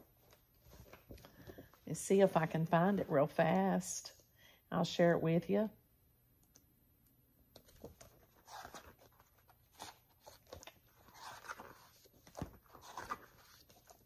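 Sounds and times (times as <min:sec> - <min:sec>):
book pages rustling: 0:00.0 - 0:01.9, 0:07.6 - 0:14.0.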